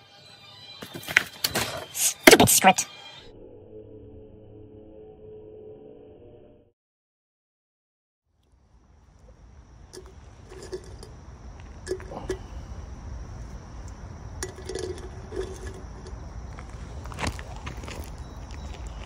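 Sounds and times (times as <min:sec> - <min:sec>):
light clinks and knocks: 0:09.9 - 0:12.5, 0:14.4 - 0:16.7.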